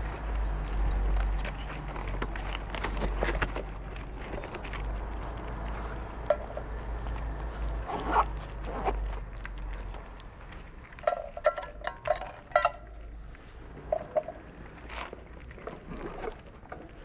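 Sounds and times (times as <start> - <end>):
kittens crunching dry kibble: 0.0 - 6.2.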